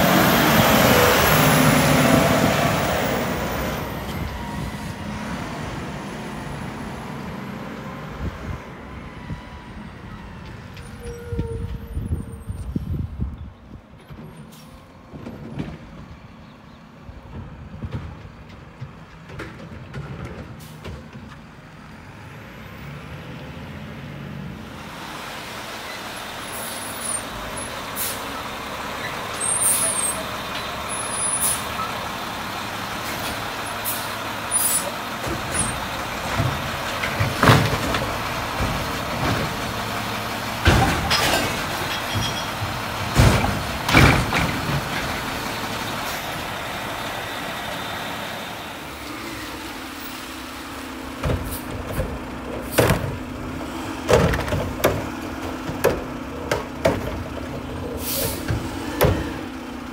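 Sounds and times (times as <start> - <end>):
garbage truck engine running: 24.5 - 59.9.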